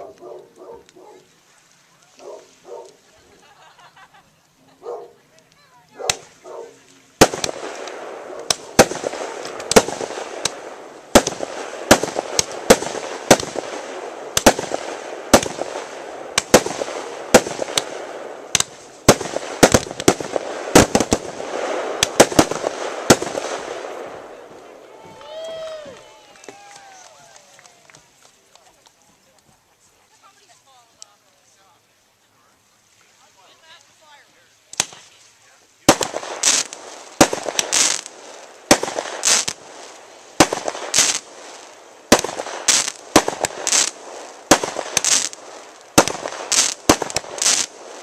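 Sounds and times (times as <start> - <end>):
fireworks hissing crackle: 0.0 - 48.0
fireworks bangs: 4.9 - 28.6, 33.5 - 48.0.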